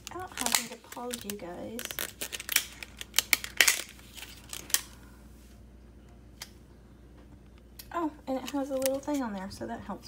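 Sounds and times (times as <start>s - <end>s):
packaging rustling: 0.0s - 5.0s.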